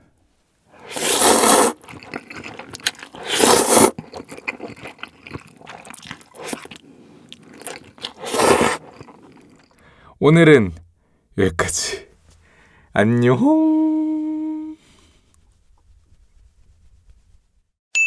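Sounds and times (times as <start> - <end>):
noodles slurped: 0.7 - 9.9
wet chewing: 0.8 - 9.9.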